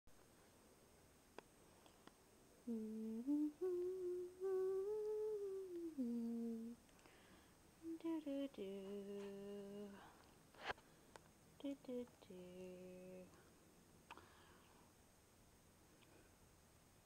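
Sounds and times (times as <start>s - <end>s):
woman humming: 2.6s - 6.8s, 7.8s - 10.1s, 11.6s - 13.4s.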